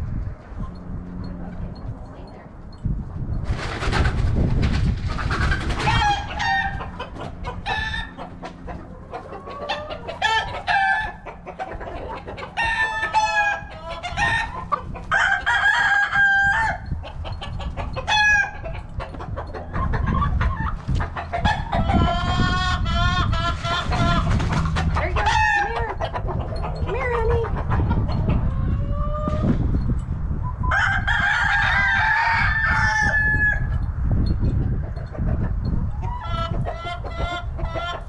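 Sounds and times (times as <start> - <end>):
chickens squawking: 3.5 - 29.7, 30.5 - 33.8, 34.5 - 38.0
low rumble: 18.8 - 30.7.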